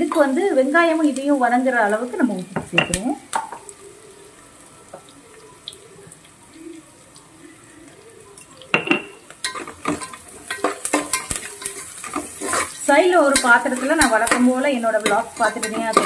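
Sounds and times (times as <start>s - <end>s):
onions sizzling in oil: 0.0s - 16.0s
spoon scraping a metal pot: 9.4s - 16.0s.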